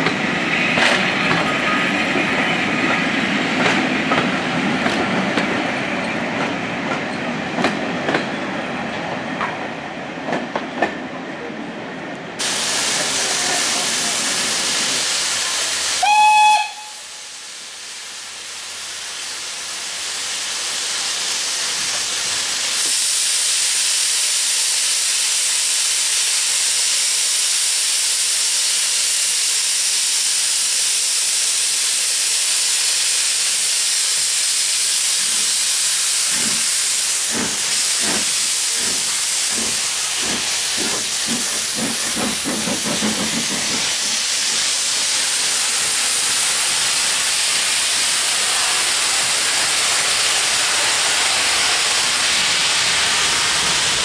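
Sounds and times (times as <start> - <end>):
loud hiss of steam: 0.0 - 9.3, 12.3 - 54.0
steam locomotive exhaust chuffs: 12.4 - 54.0
steam train whistle: 16.0 - 17.4.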